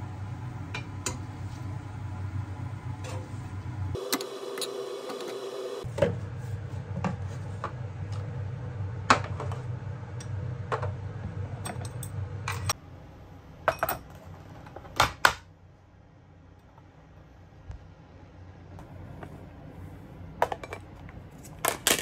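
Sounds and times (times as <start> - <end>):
low fan hum: 0.0 - 13.6
kitchenware knocking and clinking: 13.6 - 14.2, 20.4 - 20.9.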